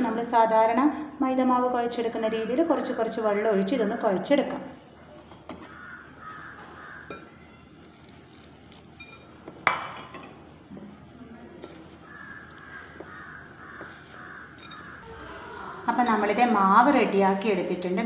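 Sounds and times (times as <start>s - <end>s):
crows cawing: 5.6s - 7.7s, 12.0s - 15.9s
kitchenware clink: 9.0s - 10.4s, 14.5s - 15.0s.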